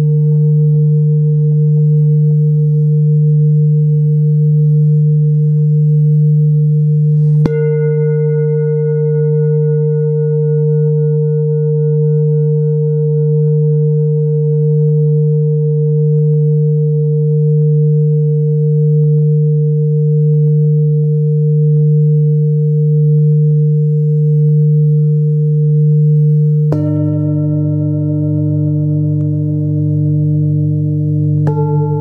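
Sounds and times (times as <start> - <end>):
deep singing bowl tone: 0.0 - 32.0
singing bowl struck with mallet: 5.7 - 18.0, 24.4 - 32.0.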